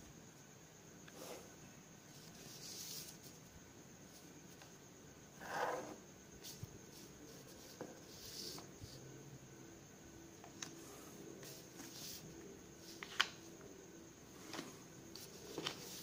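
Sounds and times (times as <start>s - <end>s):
plastic ruler sliding on paper: 5.4s - 6.0s
paper rustle: 12.8s - 13.4s, 14.5s - 16.0s.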